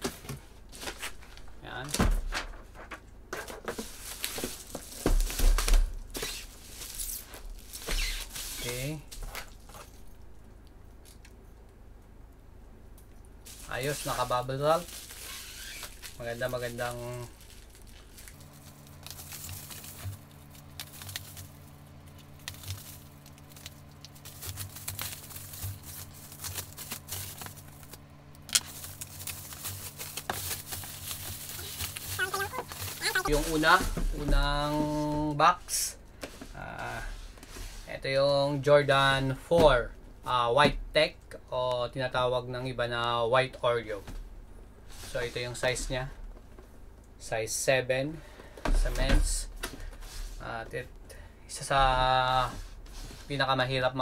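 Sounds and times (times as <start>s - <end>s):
bubble wrap crinkling: 3.8s - 10.1s, 13.4s - 35.1s.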